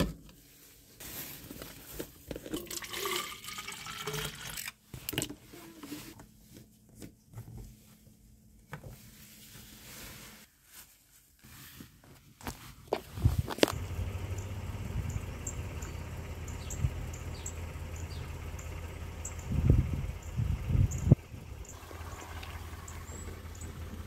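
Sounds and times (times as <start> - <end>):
water pouring into plastic bottle: 2.5 - 4.7.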